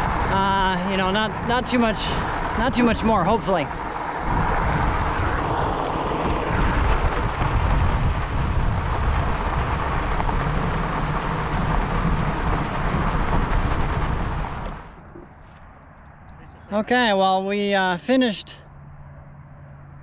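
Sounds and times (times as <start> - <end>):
wind buffeting microphone: 0.0 - 15.4
bicycle tyres on gravel: 0.0 - 15.7.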